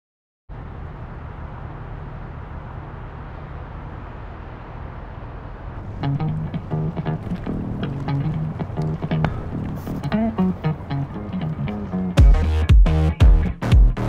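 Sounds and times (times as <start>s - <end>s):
low traffic rumble: 0.5s - 14.0s
plucked-string music: 5.9s - 14.0s.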